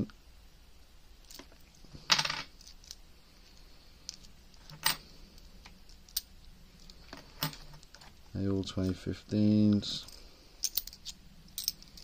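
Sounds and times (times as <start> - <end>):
coins clinking in hand: 10.1 - 12.0.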